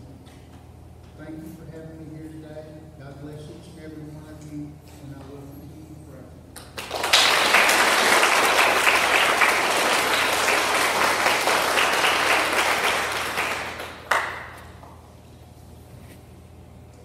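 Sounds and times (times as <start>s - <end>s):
audience applauding: 6.8s - 14.7s.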